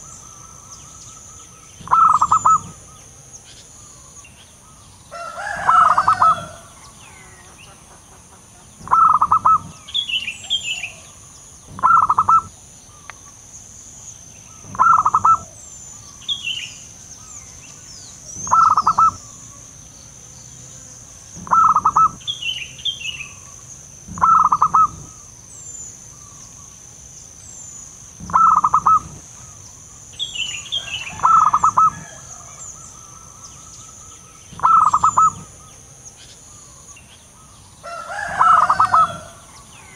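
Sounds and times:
higher bird chirps: 0.0 - 7.8, 8.8 - 19.7, 20.8 - 39.9
steady high-pitched buzz: 0.0 - 37.8
dove cooing: 1.8 - 3.0, 5.2 - 7.4, 8.8 - 12.5, 14.6 - 15.6, 18.3 - 19.4, 21.4 - 22.3, 24.1 - 25.2, 28.2 - 29.6, 30.8 - 33.4, 34.5 - 35.7, 37.9 - 39.9.

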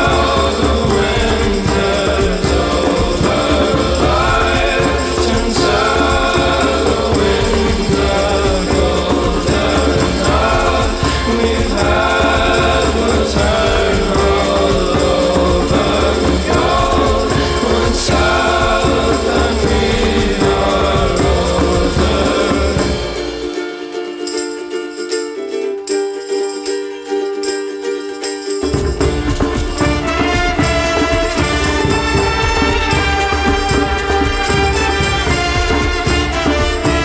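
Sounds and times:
steady bass line: 0.0 - 23.6
soundtrack music with singing: 0.0 - 24.4, 28.7 - 37.0.

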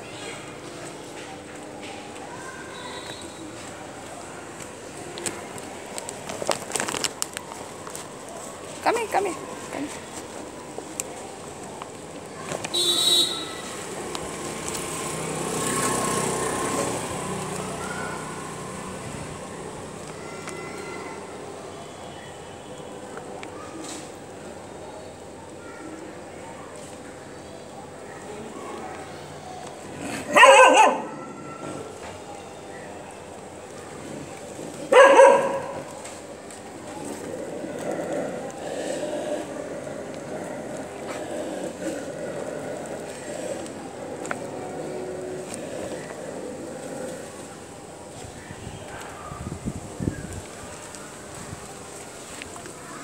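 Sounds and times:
motor vehicle passing by: 13.6 - 20.3, 36.8 - 48.2
puppy barking: 30.3 - 31.4, 34.9 - 35.9.

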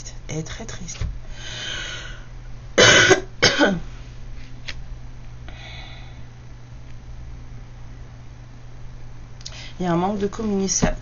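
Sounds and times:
woman coughing: 2.8 - 3.9.

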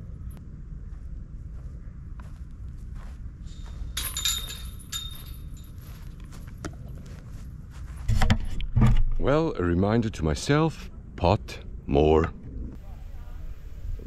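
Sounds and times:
metal chains jangling: 3.8 - 6.0
wind rumble on microphone: 12.3 - 14.0.

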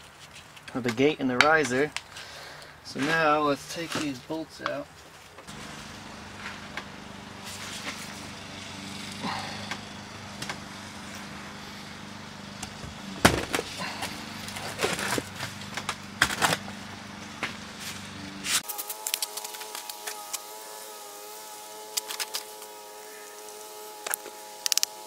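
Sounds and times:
low motor hum: 5.3 - 25.0.

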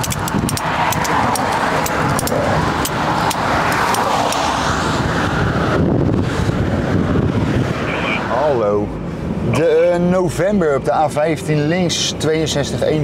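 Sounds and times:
metallic clicks and clinks: 0.0 - 4.4
road traffic noise: 0.0 - 13.0.

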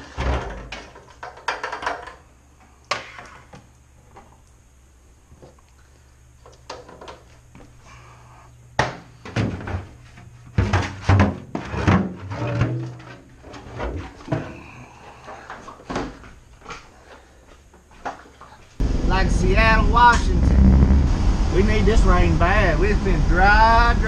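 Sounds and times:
plastic jugs knocking on hard floor: 10.5 - 13.1.

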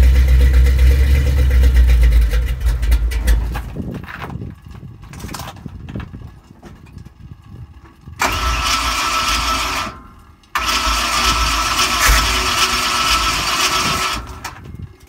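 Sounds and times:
engine idling unevenly: 0.0 - 5.1, 5.8 - 14.9
engine revving hard: 10.6 - 14.4.

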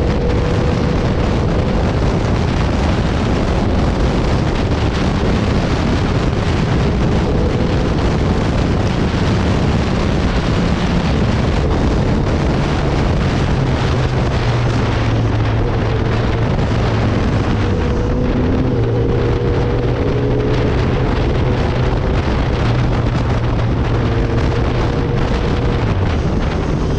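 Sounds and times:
motorcycle engine running: 0.0 - 26.9
wind noise on microphone: 0.0 - 26.9.

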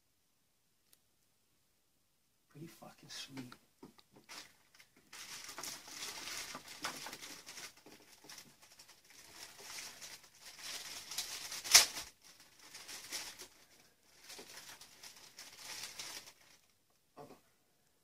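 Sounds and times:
plastic bag crinkling: 4.2 - 16.8.

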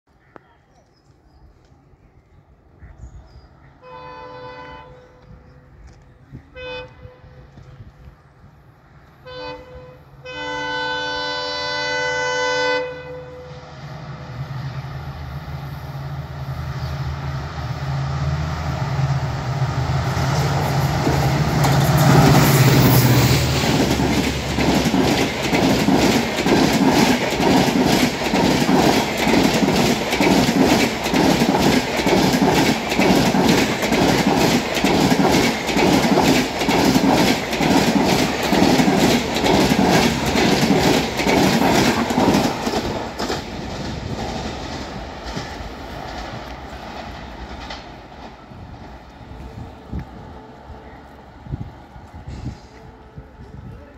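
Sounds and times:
diesel locomotive engine rumble: 1.7 - 53.9
locomotive horn blasts: 3.8 - 5.3, 6.5 - 7.6, 9.2 - 13.6
train wheels clattering over rail joints: 20.2 - 49.5.

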